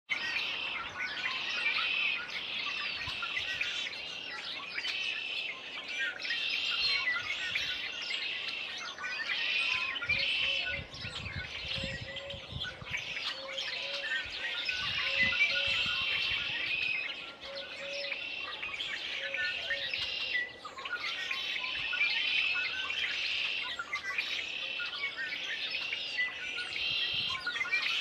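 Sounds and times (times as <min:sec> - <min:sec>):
chorus of songbirds singing: 0:00.1 - 0:28.0.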